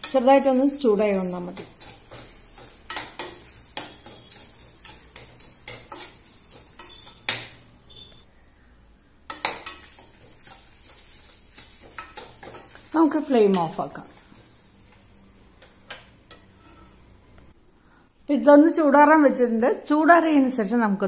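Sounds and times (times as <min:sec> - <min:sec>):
metal spoon scraping metal pan: 0:00.0 - 0:08.1, 0:09.3 - 0:14.8, 0:16.3 - 0:17.1.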